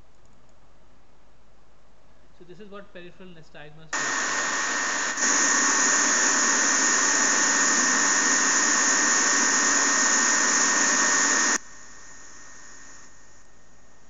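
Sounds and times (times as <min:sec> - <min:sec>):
faint hum: 0:00.0 - 0:14.0
blowing noise with thin whine: 0:04.0 - 0:14.0.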